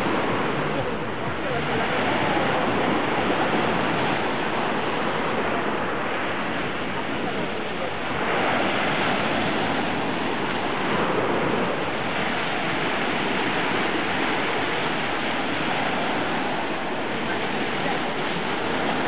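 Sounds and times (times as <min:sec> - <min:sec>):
small waves washing up a beach: 0:00.0 - 0:19.0.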